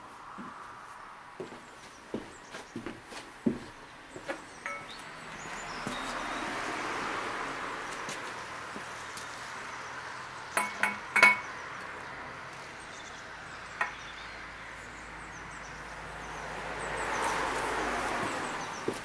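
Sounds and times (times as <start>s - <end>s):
steel tools clinking on metal: 4.6s - 5.0s.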